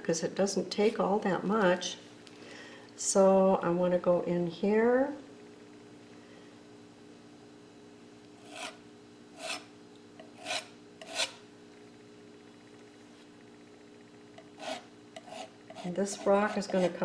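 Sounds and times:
palette knife scraping canvas: 0:08.4 - 0:08.8, 0:09.4 - 0:09.7, 0:10.3 - 0:11.4, 0:14.6 - 0:17.0.

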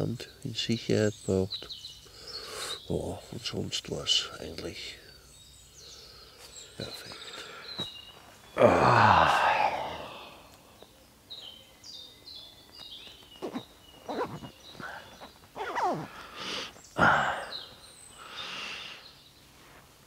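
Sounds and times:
songbird singing: 0:00.0 - 0:20.0
clothing rustling: 0:13.2 - 0:16.1.

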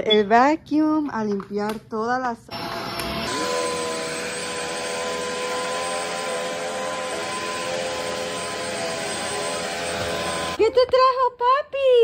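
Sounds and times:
vacuum cleaner running on carpet: 0:02.5 - 0:10.6.

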